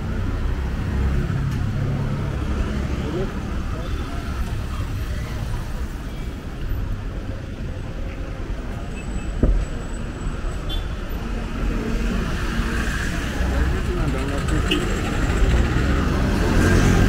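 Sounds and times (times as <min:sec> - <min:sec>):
traffic rumbling past: 0:11.1 - 0:17.0.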